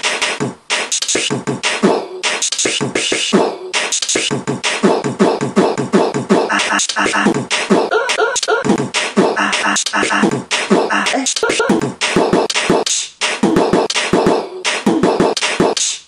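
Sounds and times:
beatboxing: 0:00.0 - 0:16.0.

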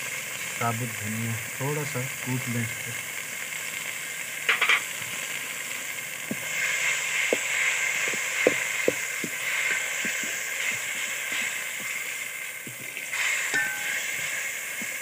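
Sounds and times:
spices sizzling in a pot: 0:00.0 - 0:15.0
small clicks and pops: 0:07.2 - 0:13.1
steel spoon stirring: 0:12.8 - 0:14.5.

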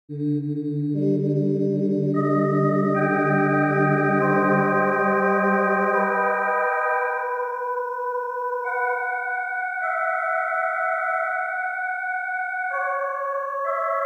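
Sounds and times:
held chords intro music: 0:01.0 - 0:06.3.

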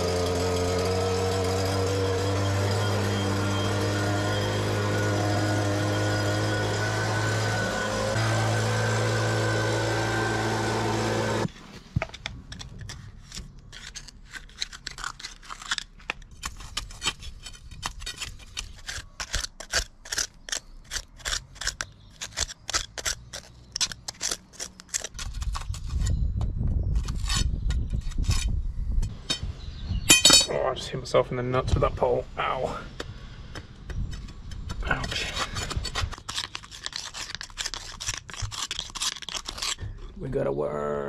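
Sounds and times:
leaf blower running: 0:00.0 - 0:11.5
scraping mud from drain holes: 0:11.2 - 0:26.2, 0:33.5 - 0:40.2.

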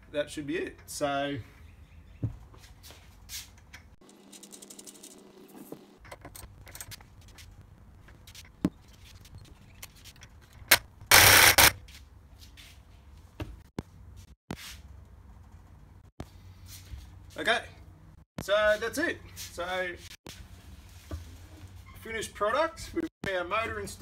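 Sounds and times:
loud tool rattle: 0:10.6 - 0:11.8.

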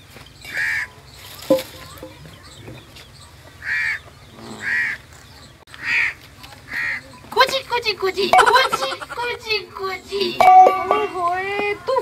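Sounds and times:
bird giving harsh calls: 0:00.5 - 0:07.2.

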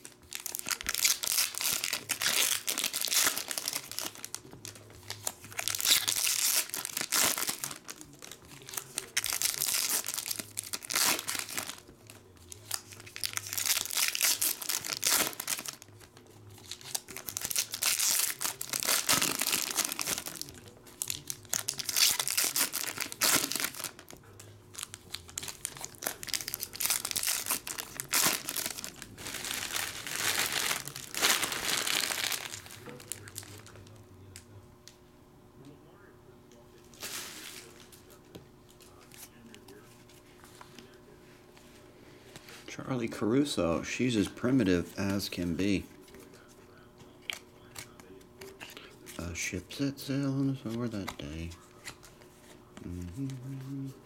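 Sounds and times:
foil wrappers crinkling and tearing: 0:00.0 - 0:34.0, 0:36.9 - 0:38.2.

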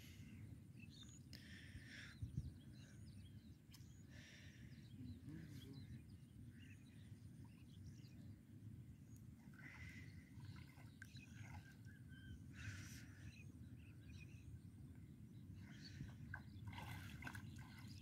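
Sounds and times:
shallow water swishing: 0:09.4 - 0:11.9, 0:15.7 - 0:18.0.

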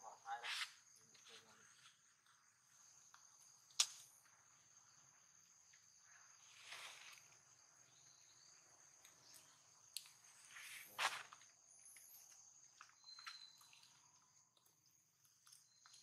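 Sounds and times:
high-pitched insect trilling: 0:11.7 - 0:16.0.

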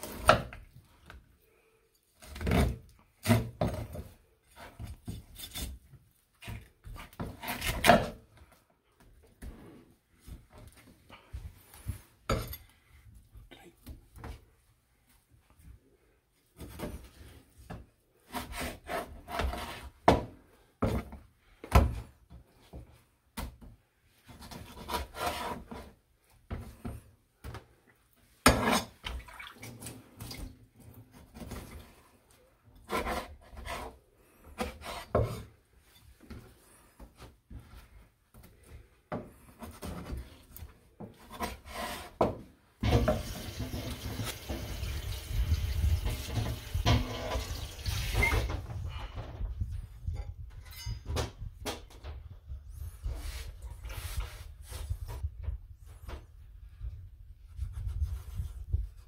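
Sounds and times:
knife scraping on plastic cutting board: 0:18.3 - 0:19.9, 0:24.3 - 0:25.9, 0:32.8 - 0:34.0, 0:34.6 - 0:35.5, 0:41.2 - 0:42.3.

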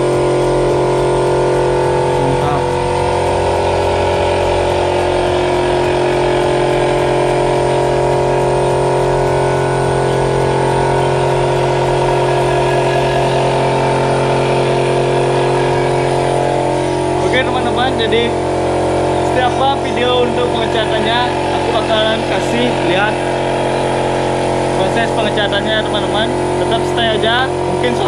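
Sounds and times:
air compressor motor droning: 0:00.0 - 0:28.0.

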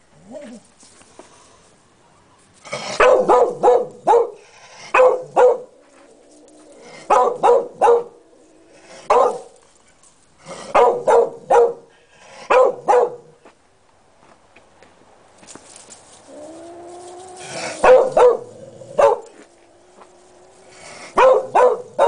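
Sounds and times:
dog barking: 0:03.0 - 0:05.7, 0:07.1 - 0:08.2, 0:09.1 - 0:09.5, 0:10.7 - 0:11.9, 0:12.5 - 0:13.3, 0:17.8 - 0:19.4, 0:21.2 - 0:22.0.

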